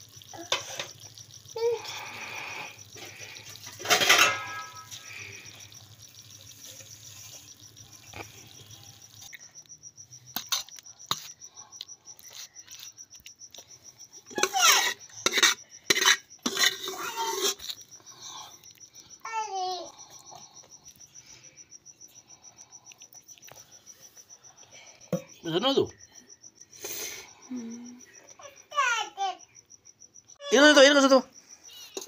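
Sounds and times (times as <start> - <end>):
cricket chirping: 0.0 - 32.0
metal ladle scraping steel plate: 3.6 - 5.0, 14.3 - 17.8.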